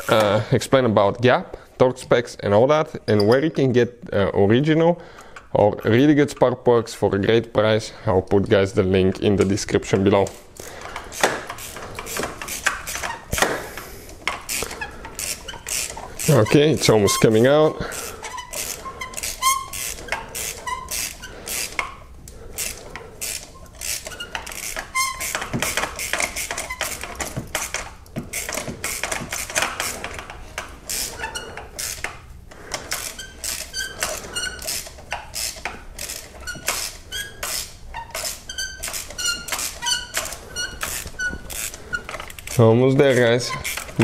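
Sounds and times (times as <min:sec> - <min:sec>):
hand ratchet clicking: 0:10.5 - 0:44.0
short squeaks: 0:10.8 - 0:44.0.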